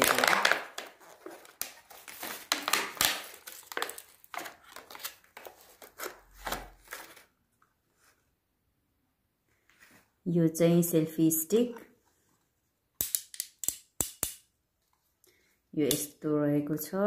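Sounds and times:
packaging rustling and clicking: 0.0 - 7.3.

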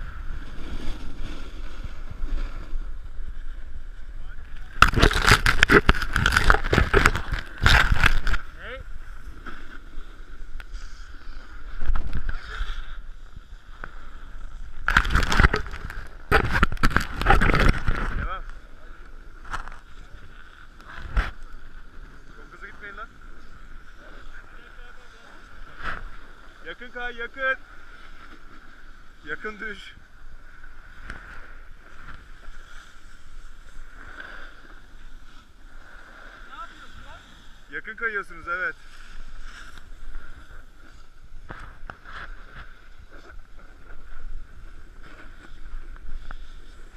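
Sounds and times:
snowboard scraping over snow: 0.0 - 3.8, 20.9 - 46.9
wind rumble on microphone: 10.4 - 20.1.

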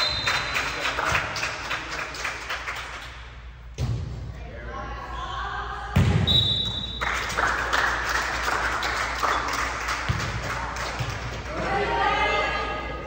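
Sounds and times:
referee's whistle blast: 6.2 - 7.0
crowd cheering and chatter: 8.4 - 13.0.

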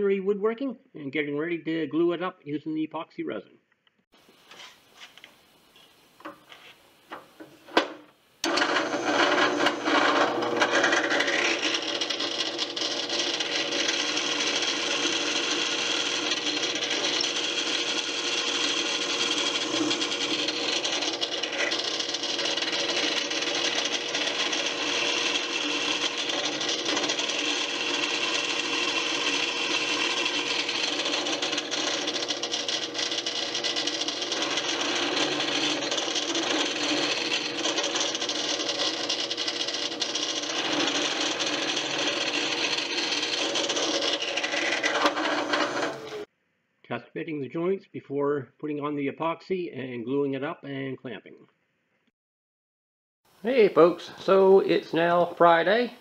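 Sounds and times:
drill press motor humming: 8.4 - 46.3.

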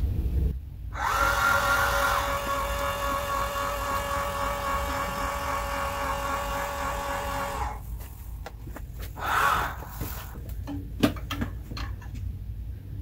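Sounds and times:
telescope motors whining: 1.0 - 7.9.

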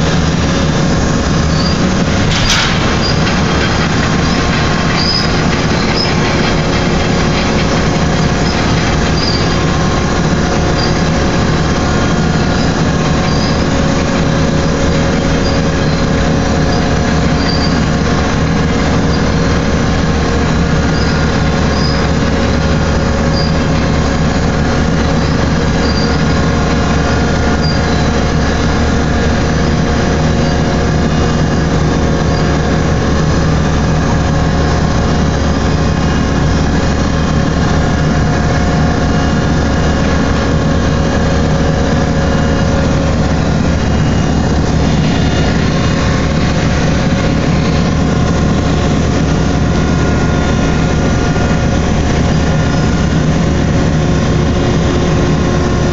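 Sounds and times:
hydraulic machinery hum: 0.0 - 55.9
high metallic squeaks: 0.4 - 28.6.

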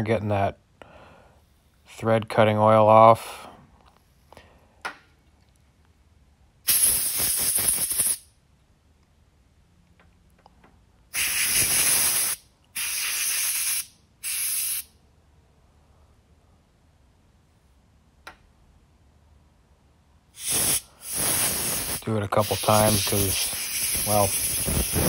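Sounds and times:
aerosol spray hissing: 6.7 - 8.2, 11.2 - 14.9, 20.4 - 25.0
compressed air blow gun blasting: 6.7 - 8.2, 11.1 - 14.9, 20.4 - 25.0.

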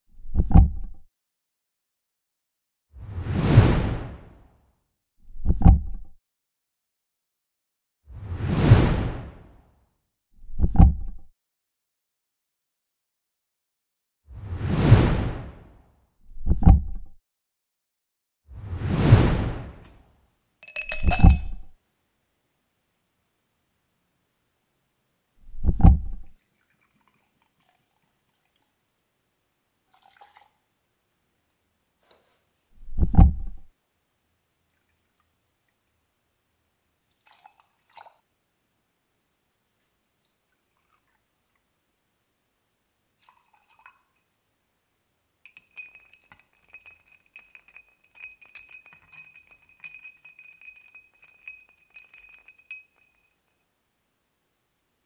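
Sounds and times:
liquid trickling into metal cup: 20.6 - 21.6, 29.9 - 30.5, 43.2 - 44.2, 45.5 - 53.6
glass ringing high tone: 20.6 - 21.7, 45.5 - 53.6
ice cubes clinking in glass: 20.6 - 21.7, 45.5 - 53.6
liquid splashing over ice: 26.4 - 28.7, 29.9 - 30.6, 37.1 - 38.2, 43.2 - 44.2
soft splash: 26.4 - 28.7.

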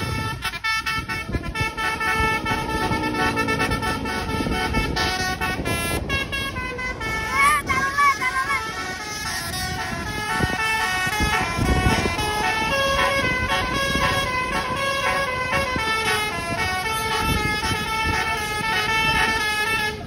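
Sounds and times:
multi-tone bus horn tune: 0.0 - 20.0
road traffic rumble: 0.0 - 20.0.

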